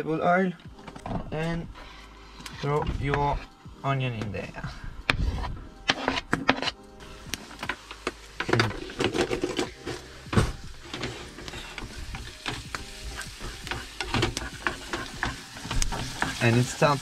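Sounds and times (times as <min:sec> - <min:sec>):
background music: 0:00.0 - 0:17.0
knife scraping chopping board: 0:05.2 - 0:06.8
wooden spatula stirring in pan: 0:05.2 - 0:17.0
onion frying in oil: 0:07.0 - 0:17.0.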